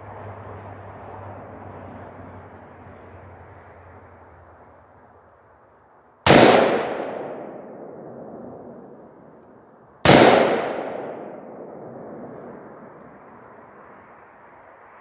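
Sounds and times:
rifle shots with echo: 0:06.2 - 0:12.9.

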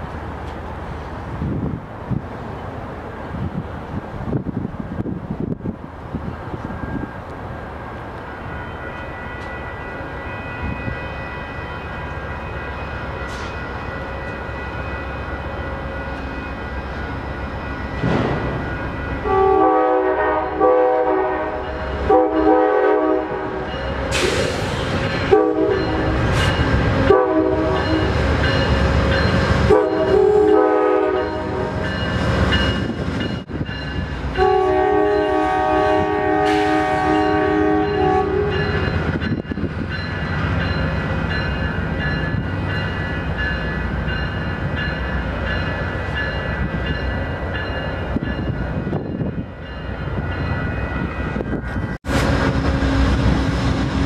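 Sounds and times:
locomotive engine and wheels rumbling: 0:00.0 - 0:54.0
locomotive air horn blasts: 0:19.2 - 0:26.2, 0:26.9 - 0:28.2, 0:29.6 - 0:31.8, 0:34.3 - 0:38.9.

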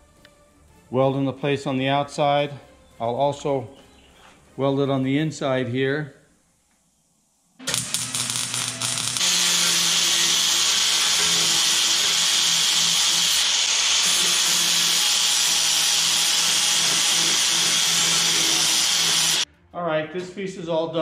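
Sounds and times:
angle grinder grinding steel: 0:07.6 - 0:19.4
welder crackling: 0:07.6 - 0:19.4.

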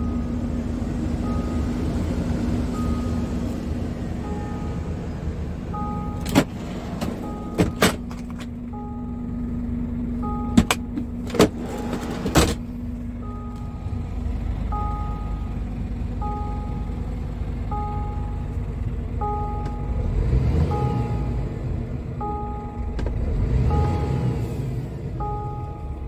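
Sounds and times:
two-tone warning chime beeping: 0:00.0 - 0:07.8, 0:08.7 - 0:09.5, 0:10.2 - 0:12.2, 0:13.2 - 0:26.0
steady hum: 0:00.0 - 0:20.0
clicks and knocks of cab fittings: 0:06.2 - 0:08.6, 0:10.4 - 0:11.6.

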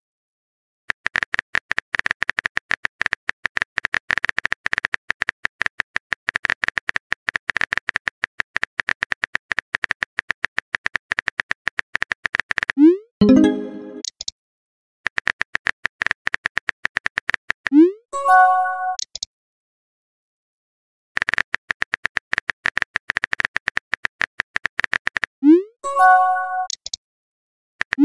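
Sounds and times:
synthetic keyboard clicks: 0:00.9 - 0:14.3, 0:15.1 - 0:18.0, 0:19.0 - 0:19.3, 0:21.2 - 0:25.6, 0:26.6 - 0:27.0, 0:27.8 - 0:28.0.

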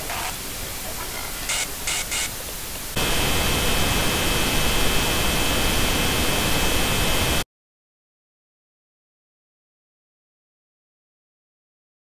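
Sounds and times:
television static hiss: 0:00.0 - 0:07.4
steady high whine: 0:02.9 - 0:07.4.

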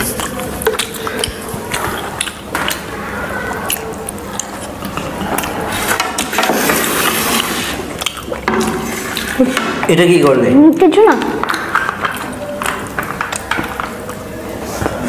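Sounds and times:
crunching and chewing: 0:00.0 - 0:09.6, 0:11.2 - 0:15.0.

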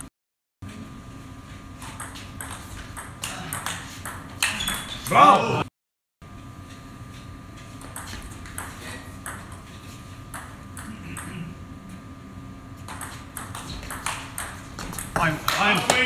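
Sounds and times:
table tennis ball clicking: 0:12.9 - 0:15.7.

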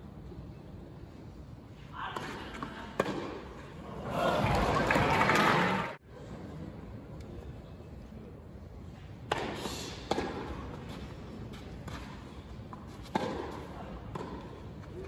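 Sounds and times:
stadium background hum: 0:00.0 - 0:15.0
tennis ball struck by racket: 0:09.2 - 0:11.0, 0:11.8 - 0:14.6.

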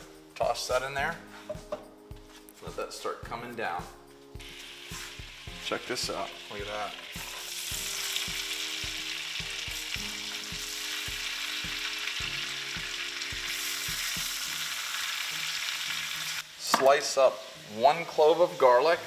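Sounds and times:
oil sizzling in a frying pan: 0:04.4 - 0:19.0.

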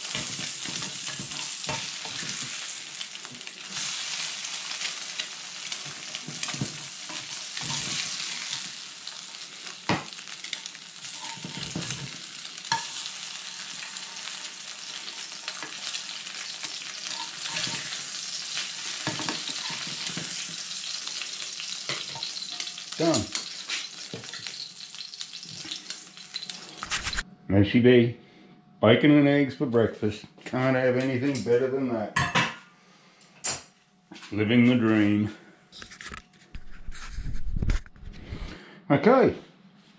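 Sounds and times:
eggs sizzling in a pan: 0:00.0 - 0:27.2
metal spatula scraping a pan: 0:00.1 - 0:02.8, 0:06.0 - 0:09.4, 0:10.4 - 0:27.2.

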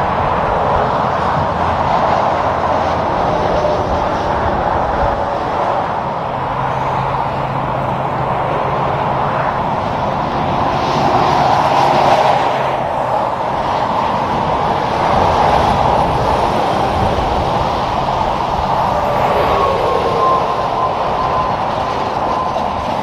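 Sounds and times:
highway traffic: 0:00.0 - 0:23.0
truck diesel engine and tyre noise: 0:00.0 - 0:23.0.

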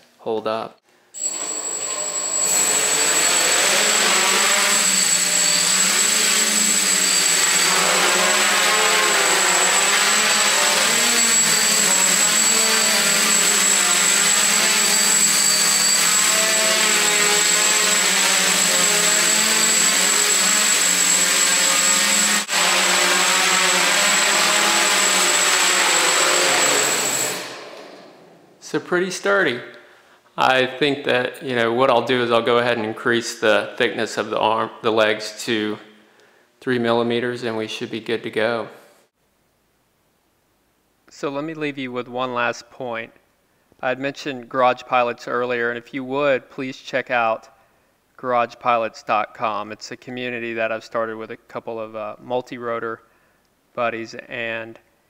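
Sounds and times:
quadcopter motors buzzing: 0:01.2 - 0:27.9.

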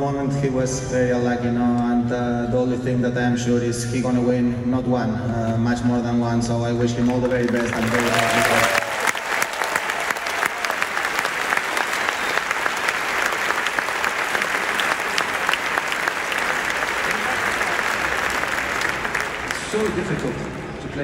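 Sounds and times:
stadium crowd applauding: 0:07.0 - 0:21.0.

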